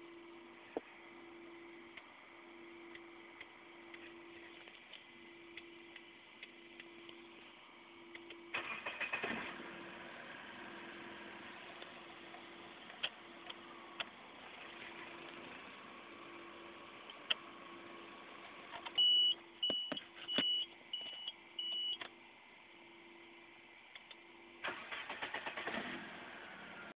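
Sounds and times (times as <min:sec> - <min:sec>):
car engine humming: 0:00.0 - 0:26.9
dashboard warning chime beeping: 0:19.0 - 0:22.0.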